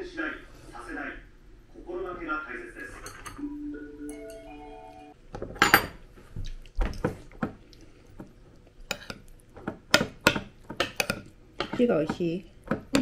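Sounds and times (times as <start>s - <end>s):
cutlery clinking on plates: 5.4s - 6.0s, 8.9s - 9.2s, 9.9s - 11.8s.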